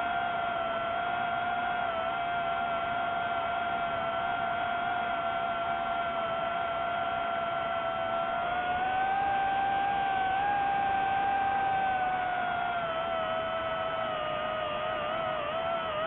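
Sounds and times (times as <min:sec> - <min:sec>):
drone propellers whining: 0:00.0 - 0:16.0.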